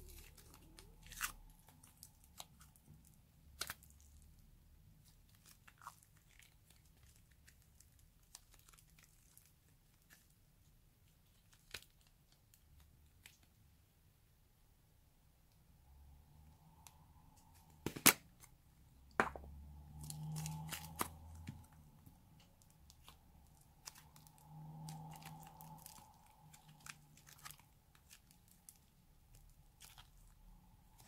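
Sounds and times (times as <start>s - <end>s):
sticky slime crackling: 0.0s - 13.5s, 19.8s - 31.0s.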